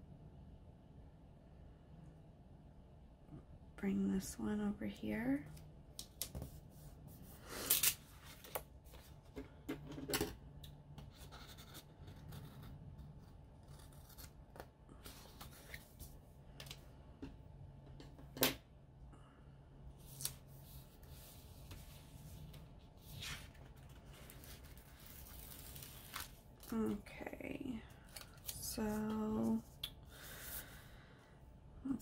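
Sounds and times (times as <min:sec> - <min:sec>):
paper rustling and sliding: 0:20.0 - 0:26.5
paper crinkles: 0:23.0 - 0:26.8.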